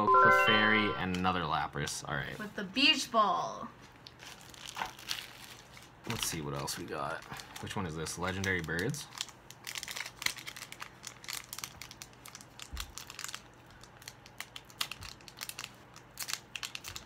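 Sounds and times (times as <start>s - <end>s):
foil wrapper crinkling: 4.0s - 17.0s.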